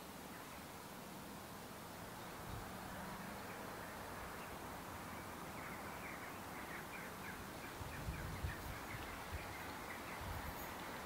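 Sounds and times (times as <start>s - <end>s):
small bird chirping: 4.3s - 11.0s.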